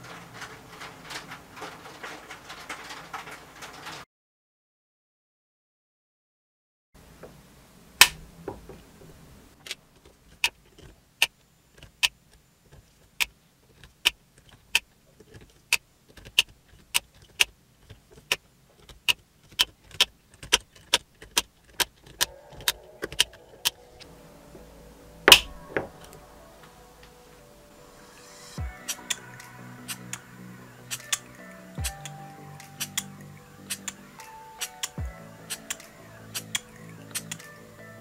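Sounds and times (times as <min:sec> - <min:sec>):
sharp metallic clicks: 0:30.9 - 0:37.6.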